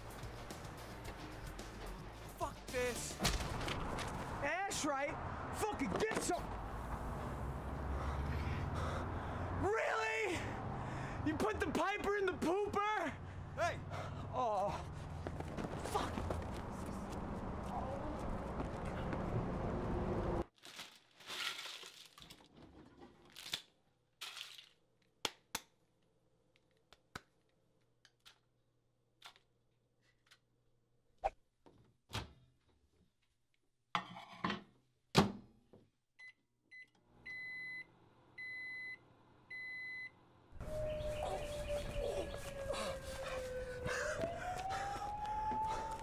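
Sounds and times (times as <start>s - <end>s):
outdoor noise: 0.0s - 20.6s, 36.7s - 46.0s
microwave beeps: 36.2s - 40.2s.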